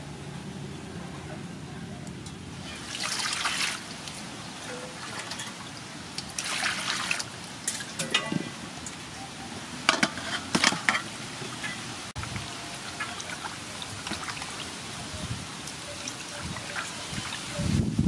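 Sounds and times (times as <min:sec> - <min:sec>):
splashes and clatters: 0:02.2 - 0:09.1, 0:09.8 - 0:17.7
water poured into metal basin: 0:02.6 - 0:08.3, 0:11.5 - 0:14.9.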